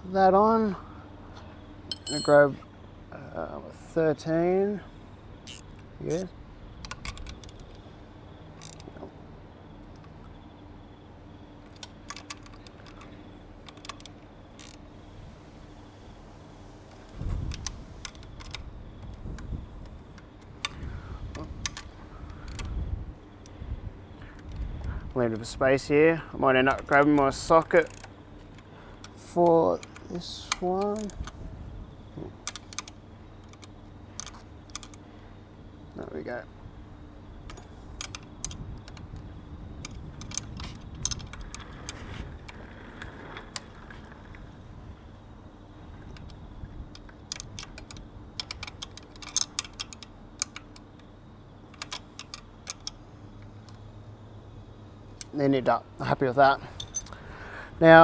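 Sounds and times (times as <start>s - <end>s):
low steady rumble: 0.0s - 58.0s
spanner clicking on metal nut: 1.9s - 2.7s, 46.1s - 51.1s, 51.7s - 53.0s
metal clinks of socket: 1.9s - 2.8s, 56.8s - 57.2s
socket ratchet clicking: 5.4s - 6.2s, 26.7s - 31.4s, 32.4s - 35.0s, 46.1s - 51.1s, 51.7s - 53.0s
wind rumble on microphone: 15.1s - 26.2s, 36.6s - 48.6s.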